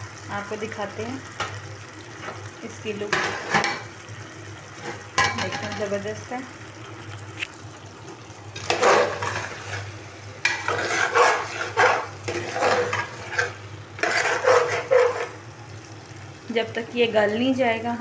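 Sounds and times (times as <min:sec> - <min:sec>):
curry sizzling: 0:00.0 - 0:18.0
metal spatula scraping pot: 0:08.6 - 0:15.4.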